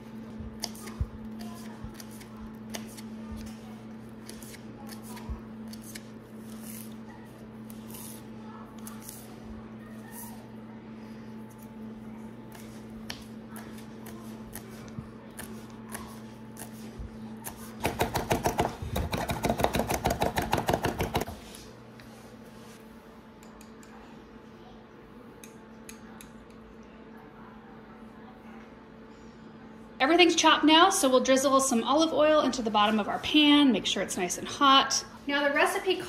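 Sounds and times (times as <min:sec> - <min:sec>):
knife chopping on wooden board: 0:17.8 - 0:21.3.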